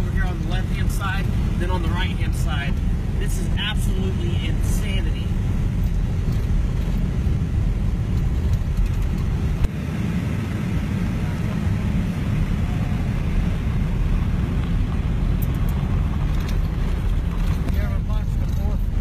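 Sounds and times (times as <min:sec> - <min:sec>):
vehicle rumble on dirt road: 0:00.0 - 0:19.0.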